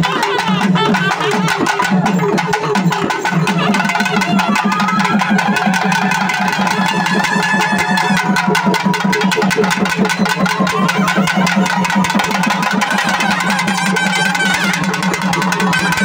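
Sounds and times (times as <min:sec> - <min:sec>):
music with fast drumming: 0:00.0 - 0:16.0.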